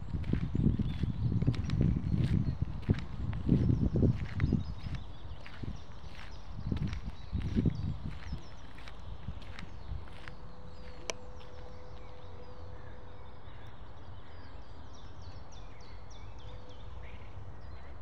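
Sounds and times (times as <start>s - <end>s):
steady low rumble: 0.0s - 12.3s
small songbirds chirping: 0.0s - 18.0s.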